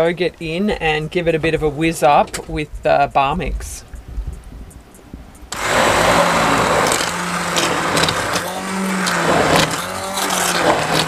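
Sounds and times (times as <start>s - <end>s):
stick blender pureeing soup: 5.5s - 11.0s.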